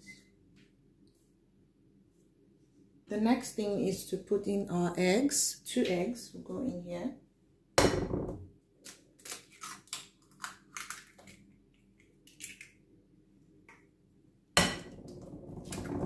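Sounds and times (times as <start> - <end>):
eggs cracking on glass bowl: 9.3 - 12.8.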